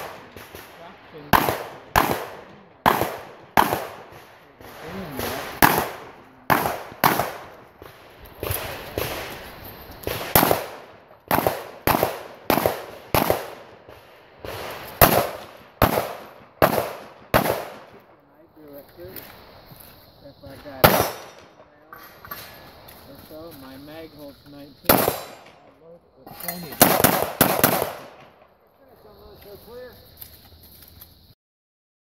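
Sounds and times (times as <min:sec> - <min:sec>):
pistol shots: 0:00.0 - 0:18.2, 0:20.6 - 0:22.0, 0:24.8 - 0:28.5.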